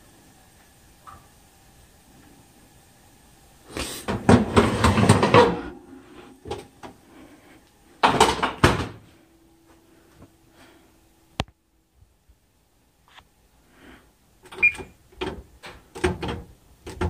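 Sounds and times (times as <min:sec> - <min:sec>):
oven rack rattling: 0:04.1 - 0:05.8.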